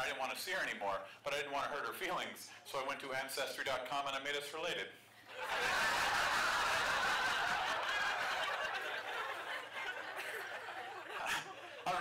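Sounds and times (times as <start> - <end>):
audience laughing: 5.3 - 12.0.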